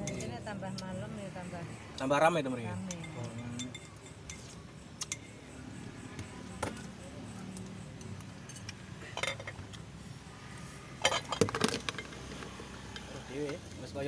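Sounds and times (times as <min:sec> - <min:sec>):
background murmur: 0:00.0 - 0:11.4
metal spoon clinking ceramic bowl: 0:02.8 - 0:05.4.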